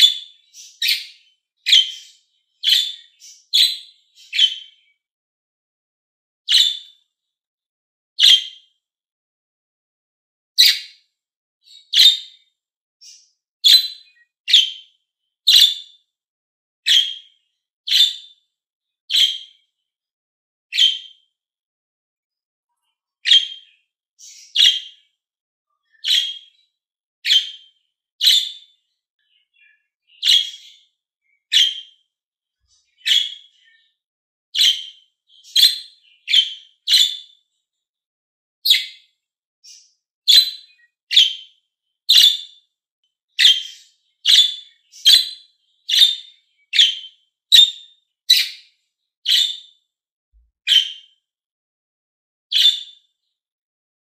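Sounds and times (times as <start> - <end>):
budgerigar chirping: 0.0 - 4.8, 6.5 - 6.9, 8.2 - 8.5, 10.6 - 10.9, 11.9 - 12.3, 13.0 - 14.8, 15.5 - 15.9, 16.9 - 17.3, 17.9 - 18.3, 19.1 - 19.5, 20.8 - 21.1, 23.2 - 25.0, 26.0 - 26.5, 27.3 - 28.7, 30.1 - 30.8, 31.5 - 32.0, 33.0 - 33.5, 34.6 - 37.3, 38.7 - 39.0, 39.6 - 41.5, 42.1 - 42.6, 43.4 - 48.6, 49.3 - 49.6, 50.7 - 51.0, 52.5 - 52.9.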